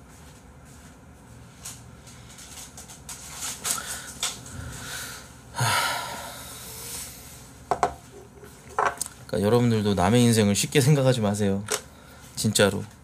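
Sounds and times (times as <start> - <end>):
tableware clicks and knocks: 7.7 - 8.0, 8.7 - 9.0.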